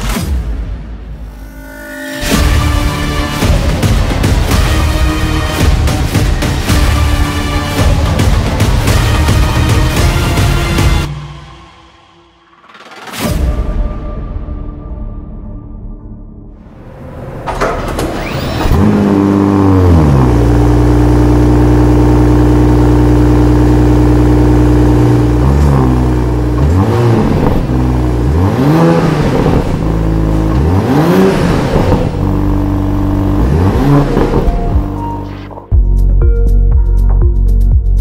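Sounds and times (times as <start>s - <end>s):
car engine revving: 1.2s - 11.6s, 17.0s - 35.5s
car engine starting and idling: 16.6s - 35.6s.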